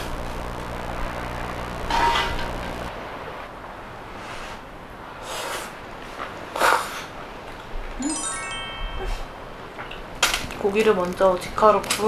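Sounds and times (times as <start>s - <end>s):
rising chime sound effect: 8.0s - 9.7s.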